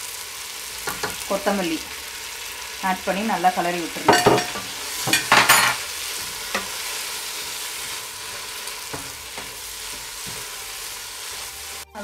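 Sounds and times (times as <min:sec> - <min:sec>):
masala sizzling in a pot: 0:00.0 - 0:12.0
spatula knock: 0:04.1 - 0:05.8.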